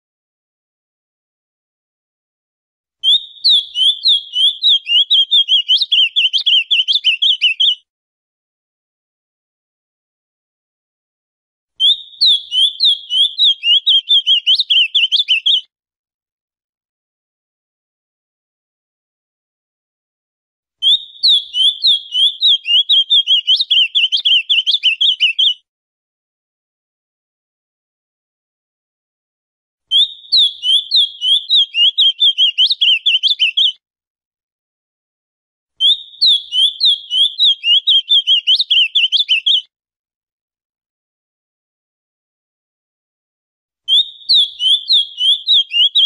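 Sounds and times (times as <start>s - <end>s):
bird singing rapid whistles: 3.0s - 7.8s, 11.8s - 15.6s, 20.8s - 25.6s, 29.9s - 33.8s, 35.8s - 39.7s, 43.9s - 46.0s.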